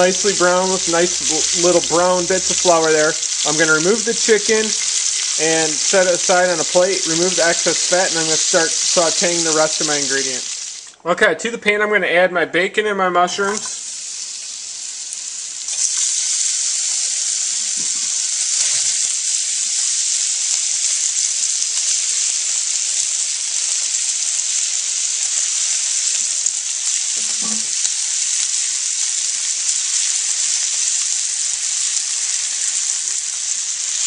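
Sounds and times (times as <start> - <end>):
food sizzling in a frying pan: 0.0 - 11.0, 13.4 - 34.0.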